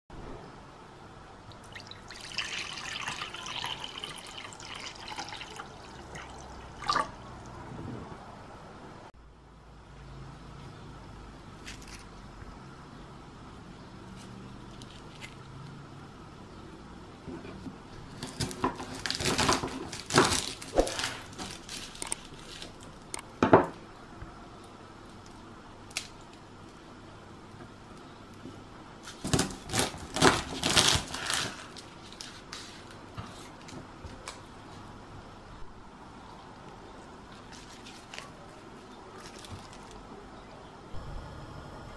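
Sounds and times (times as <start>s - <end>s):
water pouring into glass bowl: 1.5s - 7.6s.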